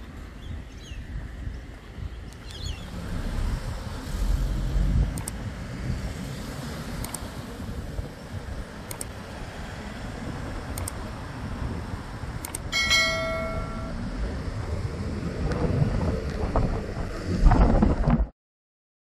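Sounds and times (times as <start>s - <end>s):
outdoor background rumble: 0.0s - 18.3s
short bell-like ring: 12.7s - 14.0s.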